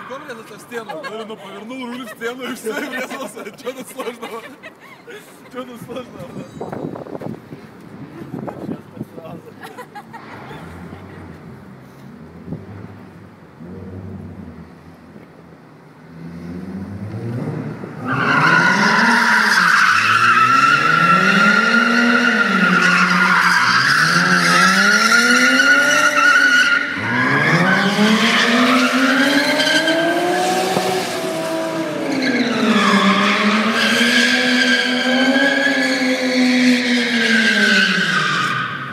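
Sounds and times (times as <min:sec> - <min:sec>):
car engine revving: 0:16.0 - 0:38.8
tyres screeching: 0:18.0 - 0:38.9.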